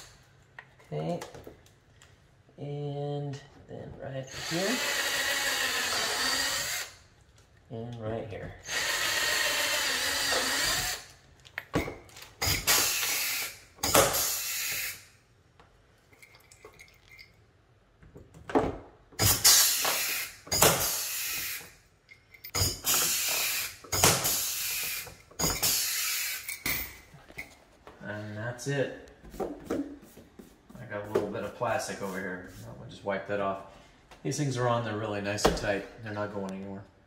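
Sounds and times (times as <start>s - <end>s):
cordless drill drilling: 4.3s - 7.0s, 8.6s - 11.1s, 12.4s - 15.0s, 19.2s - 21.7s, 22.6s - 26.5s
air rivet gun hissing bursts: 12.4s - 15.1s, 19.2s - 21.8s, 22.5s - 26.6s.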